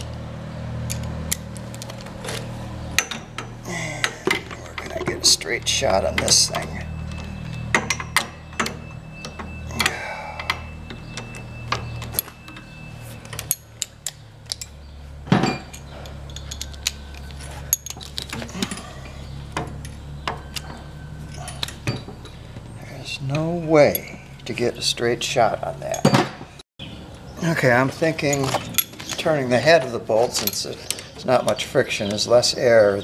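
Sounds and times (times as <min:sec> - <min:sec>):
steady low hum: 0:00.0 - 0:26.0
metal hand tools clinking: 0:15.4 - 0:22.4, 0:23.8 - 0:24.5, 0:28.2 - 0:32.4.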